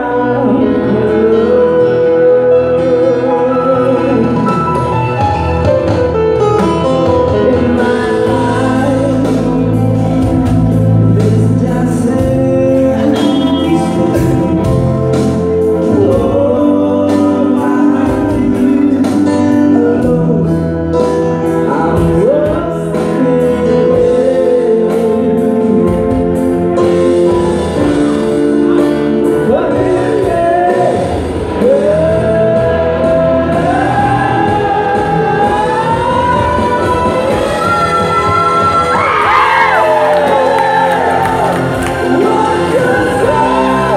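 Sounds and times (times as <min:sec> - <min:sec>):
man singing into a microphone: 0:00.0 - 0:05.5, 0:06.6 - 0:43.9
electric guitar: 0:00.0 - 0:43.9
keyboard: 0:00.0 - 0:43.9
steady low bass notes: 0:00.0 - 0:43.9.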